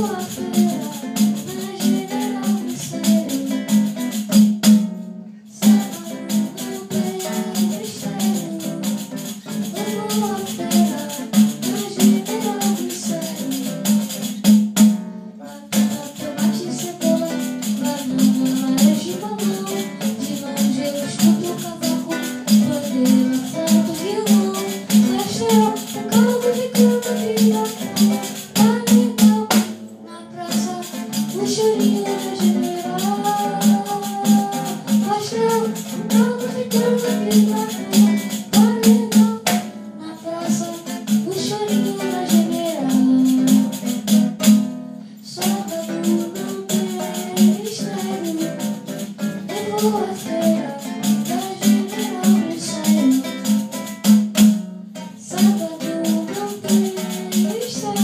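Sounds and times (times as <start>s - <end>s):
boy singing: 0.0s - 4.4s, 5.5s - 14.4s, 15.4s - 44.2s, 45.2s - 54.0s, 55.0s - 58.0s
nylon-string acoustic guitar: 0.0s - 58.0s
frame drum with jingles: 15.8s - 29.6s, 30.6s - 39.6s.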